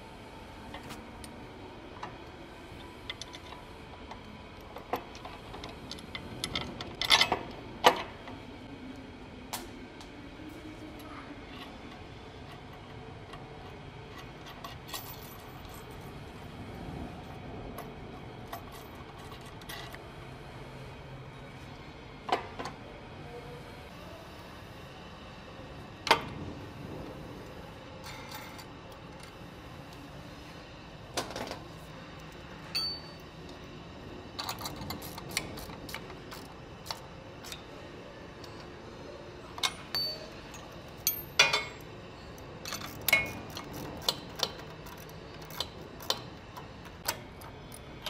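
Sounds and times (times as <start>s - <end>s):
metallic clinks of steel hardware: 39.6s - 41.8s.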